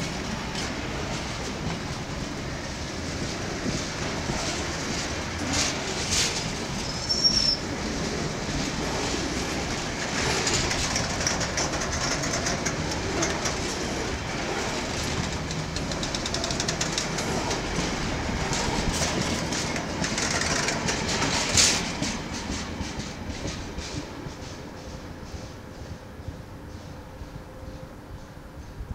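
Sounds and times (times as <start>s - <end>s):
train wheels clickety-clack: 0.0s - 28.9s.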